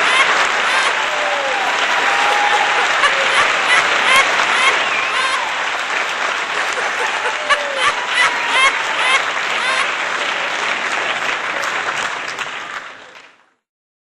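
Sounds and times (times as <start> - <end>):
shouts and whoops: 0.0 - 5.8, 6.8 - 9.9
crowd applauding and cheering: 0.0 - 13.6.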